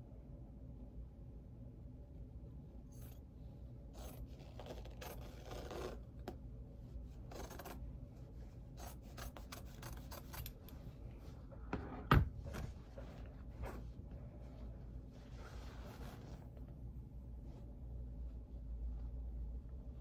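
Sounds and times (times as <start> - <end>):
cloth rustling: 4.0 - 11.6, 12.4 - 19.2
scissors snipping fabric: 7.3 - 7.8, 8.7 - 10.8.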